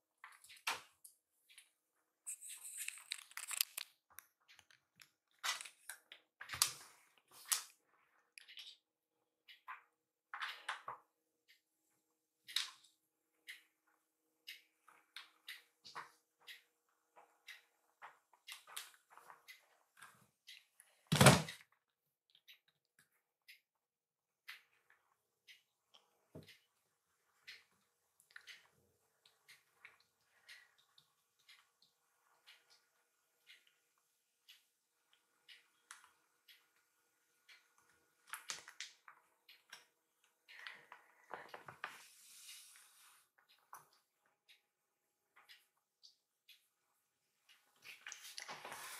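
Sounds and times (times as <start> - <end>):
kitten scratching in cat litter: 2.3 - 3.8.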